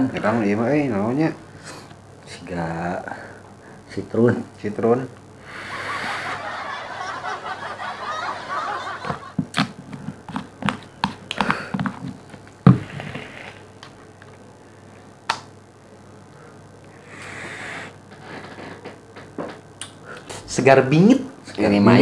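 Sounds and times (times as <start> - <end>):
breathy exhale: 5.4 - 6.3, 16.4 - 18.4.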